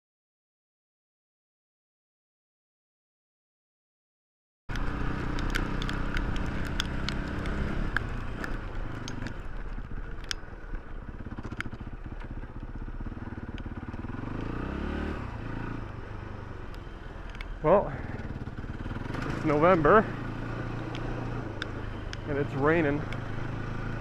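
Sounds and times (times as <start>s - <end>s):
sharp ticks and clicks: 4.7s - 12.8s, 13.4s - 14.5s, 16.6s - 24.0s
dirt bike engine running: 4.7s - 24.0s.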